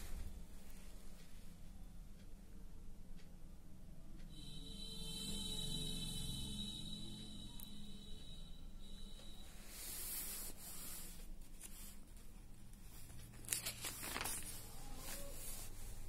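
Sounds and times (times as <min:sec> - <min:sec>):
paper pages rustling: 0:09.8 - 0:16.0
page crinkling as it flips: 0:12.9 - 0:15.7.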